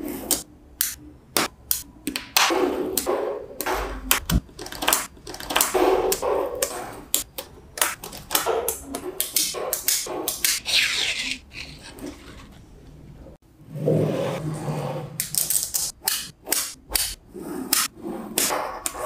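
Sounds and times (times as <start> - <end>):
magnetic balls clicking: 0.3 - 10.6.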